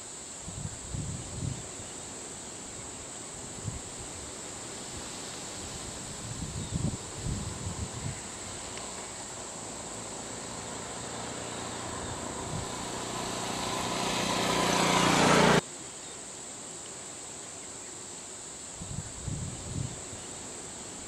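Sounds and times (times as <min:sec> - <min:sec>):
high-pitched insect buzz: 0:00.5 - 0:15.6
vehicle engine humming: 0:04.5 - 0:15.6.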